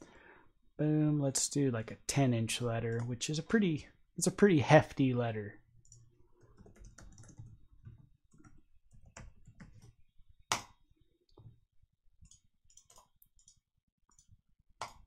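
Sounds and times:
typing on computer keyboard: 0:05.8 - 0:10.7, 0:12.2 - 0:15.0.

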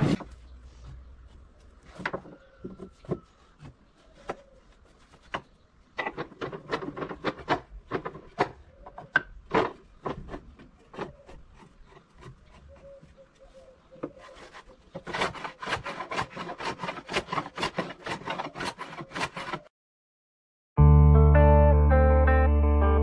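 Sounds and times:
wood rubbing: 0:00.0 - 0:19.7
wood knocking on wood: 0:01.9 - 0:04.5.

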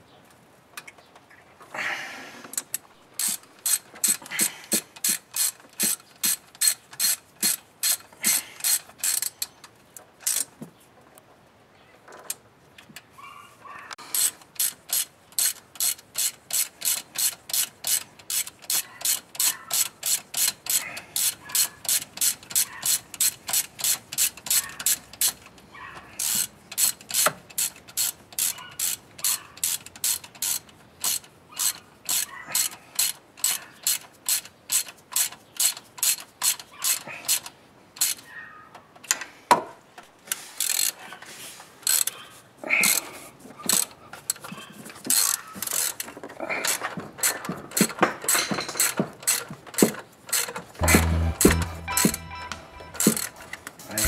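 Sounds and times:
ratchet wrench clicking: 0:03.2 - 0:04.4, 0:05.0 - 0:09.4, 0:10.2 - 0:10.5, 0:14.1 - 0:25.4, 0:26.2 - 0:37.4, 0:40.6 - 0:41.0, 0:41.9 - 0:42.1, 0:45.1 - 0:46.0.

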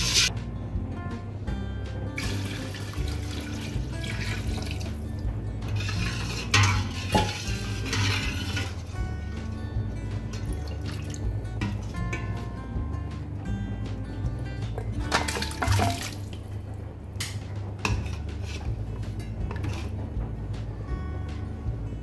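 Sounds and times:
background music: 0:00.0 - 0:22.0
water pouring and splashing into pot: 0:02.2 - 0:09.0, 0:10.3 - 0:12.0, 0:15.1 - 0:16.4.

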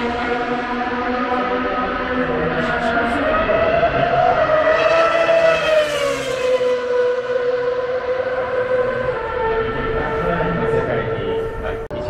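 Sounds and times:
racing car engine: 0:00.0 - 0:12.0.

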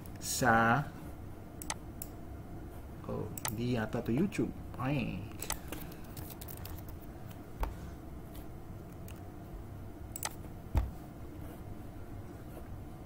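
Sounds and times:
computer mouse clicks: 0:01.6 - 0:02.2, 0:08.9 - 0:09.2, 0:10.1 - 0:10.4
keyboard key clicks: 0:10.2 - 0:10.9.

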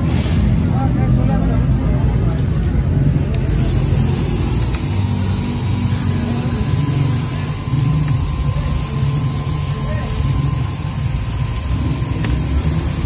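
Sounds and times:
engraving machine motor hum: 0:03.3 - 0:13.0
high hiss of cutter engraving: 0:03.4 - 0:13.0.

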